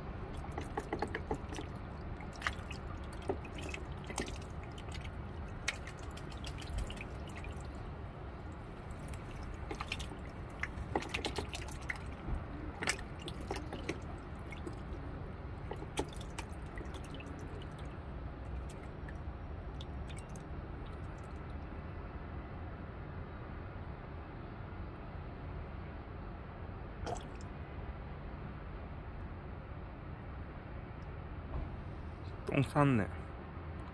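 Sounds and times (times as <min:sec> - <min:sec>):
steady low rumble: 0:00.0 - 0:24.4
duck bill splashing in water: 0:00.2 - 0:19.1.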